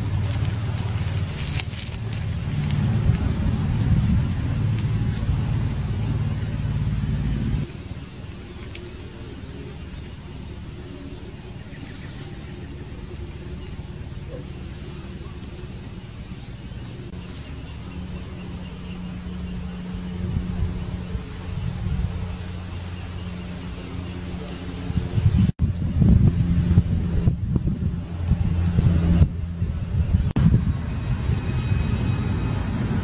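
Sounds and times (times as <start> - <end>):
wood fire crackling: 0.0 - 10.9
low rumble: 0.0 - 33.0.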